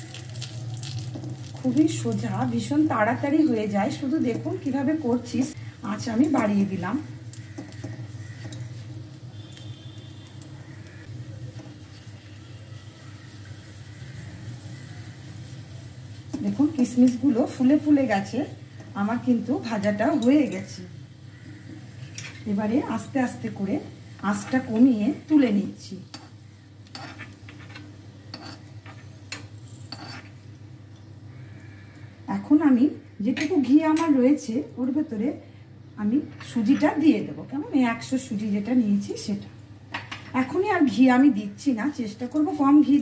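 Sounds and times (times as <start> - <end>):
nuts frying with light sizzling: 0.0 - 43.0
spatula scraping and tapping wok: 7.3 - 9.8, 26.1 - 30.4.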